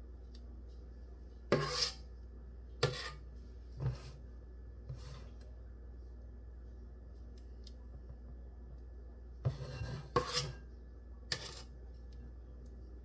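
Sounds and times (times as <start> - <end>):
metal cup scraping metal bowl: 1.5 - 2.0, 9.5 - 10.6, 11.3 - 11.7.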